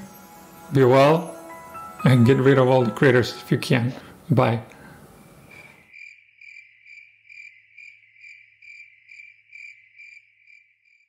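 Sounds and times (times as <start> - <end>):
crickets chirping: 4.8 - 11.0.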